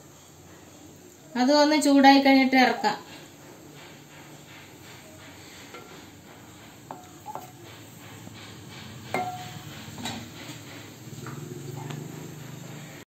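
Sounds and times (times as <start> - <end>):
low hiss of pot heating: 0.0 - 13.0
wooden spatula knocking on pot: 5.7 - 8.0, 9.1 - 10.3
pot ringing: 6.9 - 7.6, 9.1 - 9.7.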